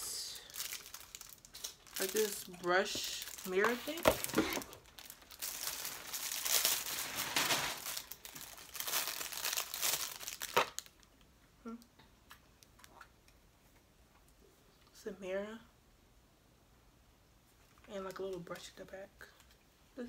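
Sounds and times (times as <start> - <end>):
plastic packaging crinkling: 0.4 - 11.1
sharp plastic crack: 3.3 - 11.0.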